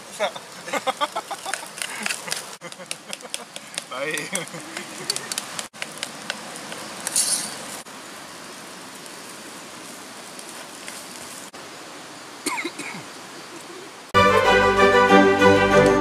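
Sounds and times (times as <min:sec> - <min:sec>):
steady background hiss: 0:00.0 - 0:16.0
music with sustained notes: 0:14.2 - 0:16.0.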